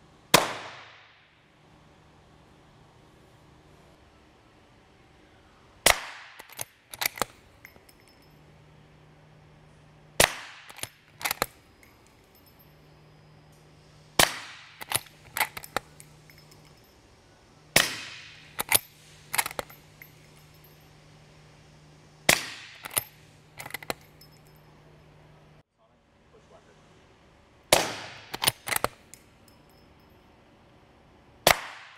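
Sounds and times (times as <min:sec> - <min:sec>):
rifle bolt clacks: 0:05.9 - 0:08.1, 0:10.2 - 0:12.5, 0:14.3 - 0:16.8, 0:17.8 - 0:20.2, 0:22.4 - 0:24.2, 0:28.1 - 0:29.2
suppressed rifle shots: 0:10.2 - 0:11.6, 0:14.2 - 0:15.9, 0:17.7 - 0:18.8, 0:27.7 - 0:29.0.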